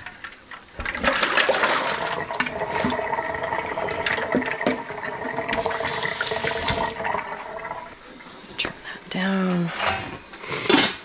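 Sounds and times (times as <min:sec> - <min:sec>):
tap water running into sink: 0:00.8 - 0:08.0.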